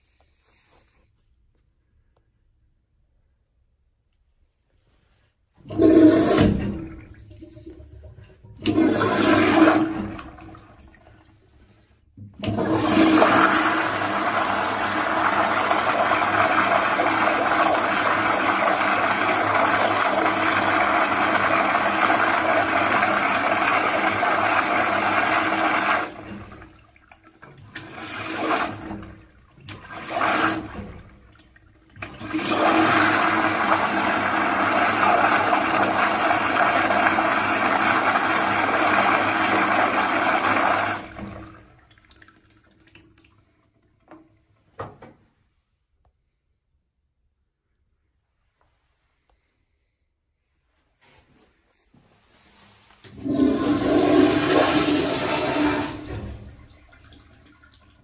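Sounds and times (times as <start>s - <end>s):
toilet flushing water rushing: 5.6s - 44.2s, 53.0s - 58.0s.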